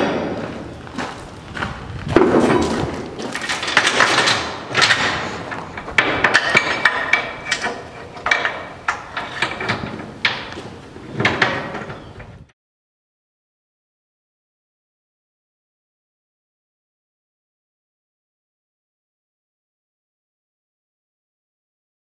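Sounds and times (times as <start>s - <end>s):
heavy clunk: 0.0s - 0.6s, 1.6s - 12.4s
metal chains clanking: 2.5s - 10.5s.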